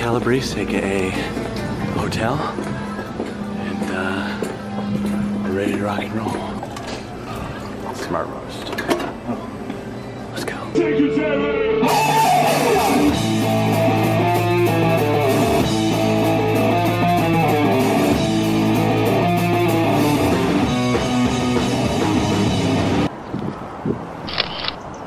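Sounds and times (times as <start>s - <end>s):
bass guitar: 10.9s - 23.1s
electric guitars: 11.6s - 23.1s
drum kit playing hard: 11.8s - 23.1s.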